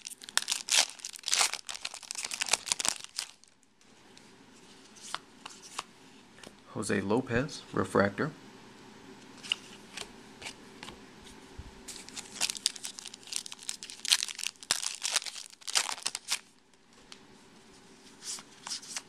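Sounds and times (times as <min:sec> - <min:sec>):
foil wrapper tearing and crinkling: 0:00.0 - 0:03.6, 0:11.9 - 0:16.6.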